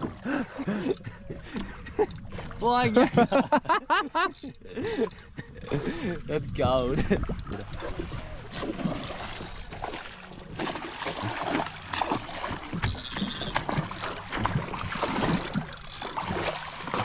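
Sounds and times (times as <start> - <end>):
wind buffeting microphone: 4.8 - 9.4
fish splashing in water: 7.7 - 17.0.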